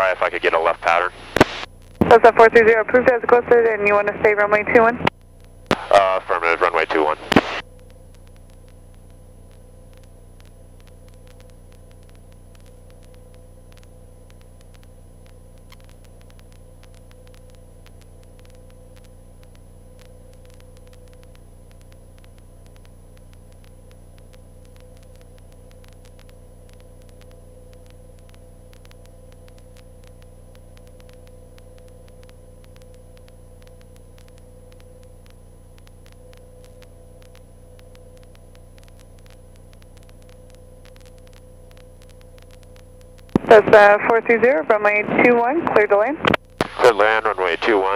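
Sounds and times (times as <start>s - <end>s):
faint light aircraft engine drone: 0.0s - 47.9s.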